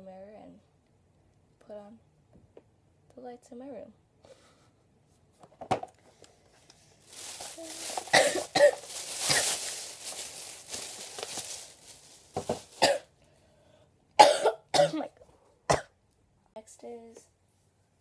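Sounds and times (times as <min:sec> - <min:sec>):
plastic bags rustling: 0:06.2 - 0:13.1
woman coughing: 0:08.0 - 0:09.6, 0:12.8 - 0:13.1, 0:14.2 - 0:15.1.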